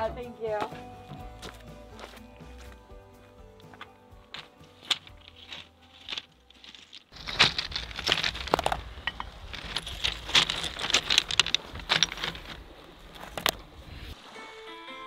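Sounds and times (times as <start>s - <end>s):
pebbles clacking and crunching: 3.6s - 13.6s.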